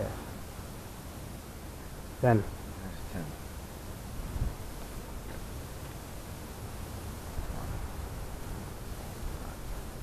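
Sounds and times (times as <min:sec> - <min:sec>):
steady hiss: 0:00.0 - 0:10.0
wind rumbling on microphone: 0:02.4 - 0:10.0.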